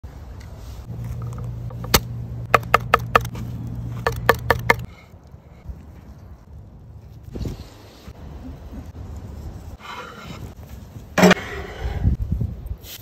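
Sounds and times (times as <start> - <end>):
low steady hum: 0.8 - 7.1.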